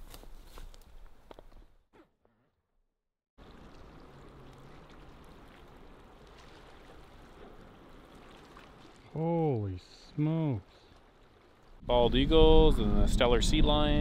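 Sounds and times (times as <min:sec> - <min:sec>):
faint sea ambience: 0:03.4 - 0:14.0.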